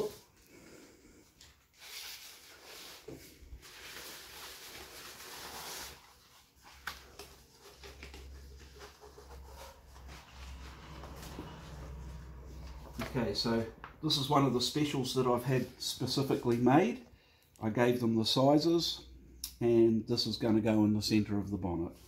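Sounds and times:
paper rustling and crinkling: 0:01.4 - 0:12.0.

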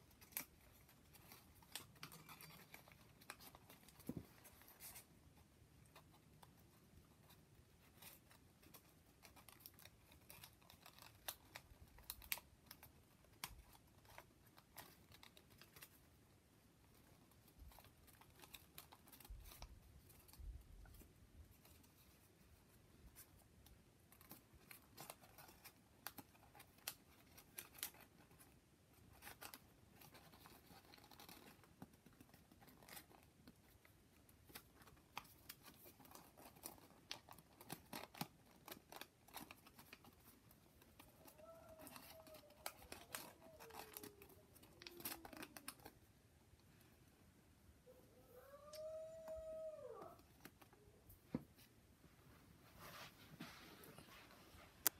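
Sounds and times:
paper rustling and crinkling: 0:00.0 - 0:46.2
small clicks and ticks: 0:05.8 - 0:46.9.

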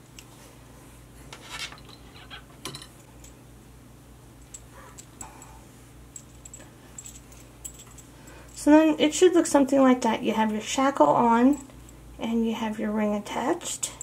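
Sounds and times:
cord rubbing through metal ring: 0:01.4 - 0:02.6
metal hardware clinking: 0:01.5 - 0:03.4, 0:06.1 - 0:08.5.

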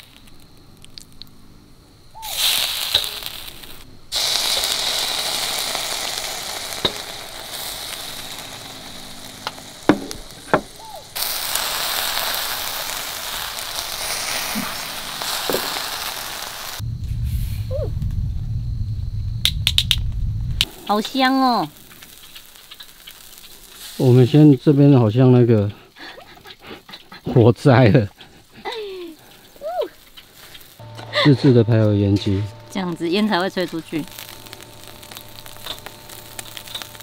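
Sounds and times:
meat sizzling in hot fat: 0:02.1 - 0:16.8, 0:20.6 - 0:26.1, 0:27.4 - 0:37.0
low hum: 0:05.2 - 0:11.2, 0:13.6 - 0:20.9, 0:30.8 - 0:37.0.

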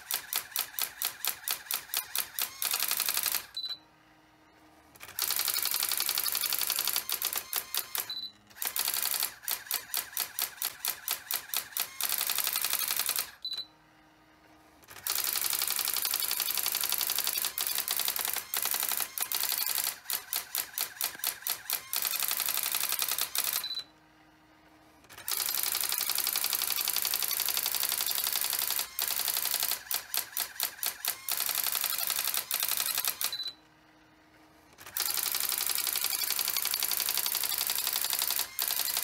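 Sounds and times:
typewriter printing clatter: 0:00.0 - 0:03.8, 0:05.0 - 0:13.6, 0:14.8 - 0:23.8, 0:25.1 - 0:33.5, 0:34.7 - 0:39.0.

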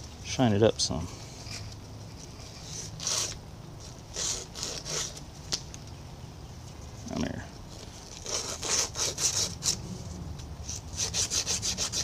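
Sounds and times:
cloth scraping a steel shaft: 0:01.2 - 0:05.2, 0:07.7 - 0:12.0.

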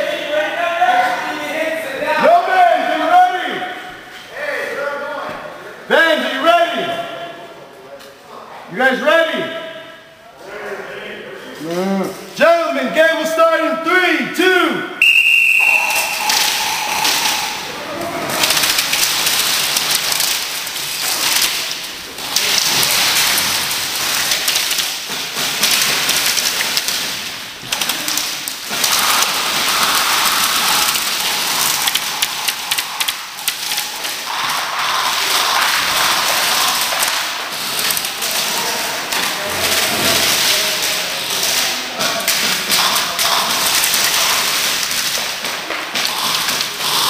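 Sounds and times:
airsoft guns firing: 0:15.1 - 0:38.4
pellets tapping on plywood: 0:18.3 - 0:47.0.

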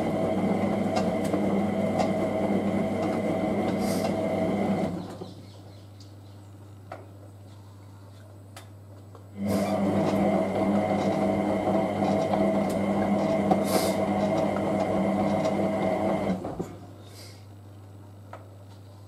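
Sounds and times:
washing machine motor whine: 0:00.0 - 0:05.4, 0:09.3 - 0:17.0.

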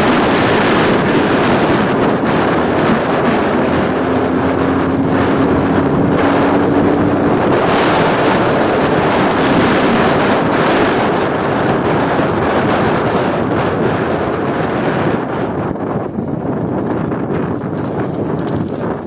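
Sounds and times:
motorcycle engine running: 0:00.0 - 0:19.0
wind noise on microphone: 0:00.0 - 0:19.0.

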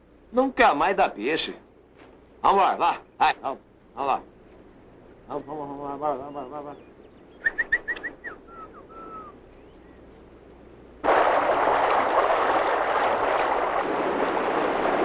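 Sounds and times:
short high-pitched calls: 0:07.4 - 0:09.4.

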